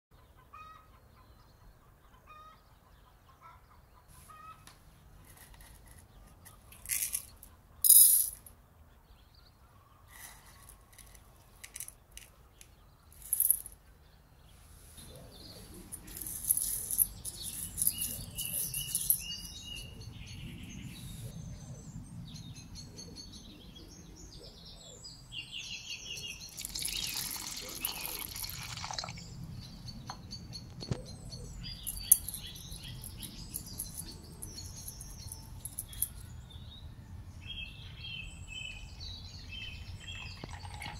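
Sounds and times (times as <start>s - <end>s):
birds chirping: 0.2s - 40.9s
water pouring into a pot: 26.5s - 29.2s, 40.2s - 40.9s.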